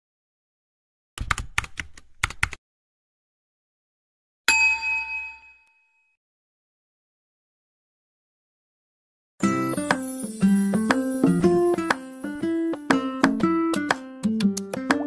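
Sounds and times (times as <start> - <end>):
bright chime: 9.4 - 12.8.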